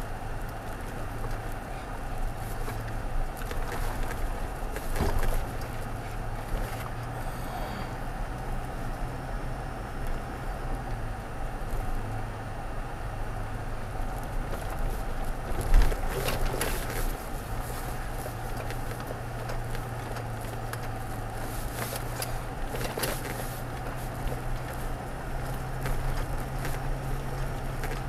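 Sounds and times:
tyres crackling over gravel: 0:00.0 - 0:09.0, 0:12.9 - 0:28.0
engine hum: 0:00.0 - 0:28.0
small clicks and rattles: 0:14.1 - 0:28.0.

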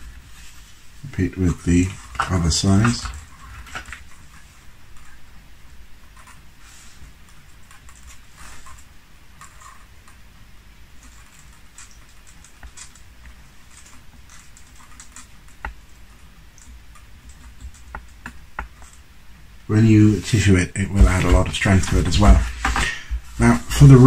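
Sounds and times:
wooden parts ticking and rustling: 0:01.1 - 0:24.0.

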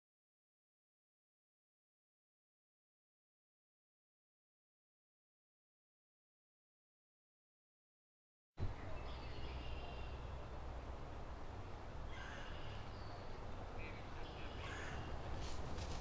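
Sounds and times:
harsh bird calls: 0:12.0 - 0:16.0.

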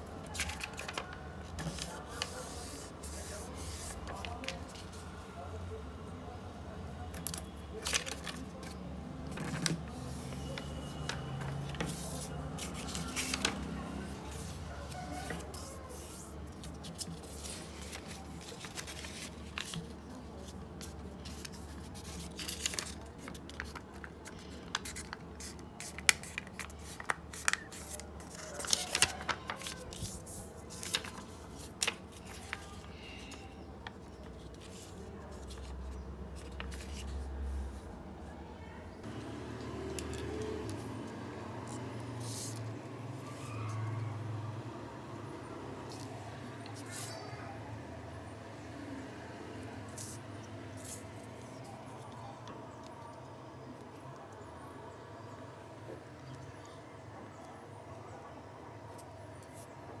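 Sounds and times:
paper crackling and rustling: 0:00.0 - 0:05.3, 0:07.1 - 0:37.8, 0:39.0 - 0:43.9, 0:45.9 - 0:47.4, 0:49.6 - 0:53.0.

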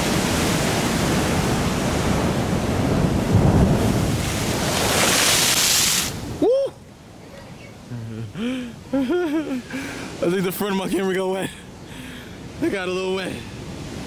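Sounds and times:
wind buffeting microphone: 0:00.0 - 0:05.5
surf breaking over rocks: 0:00.0 - 0:06.5.

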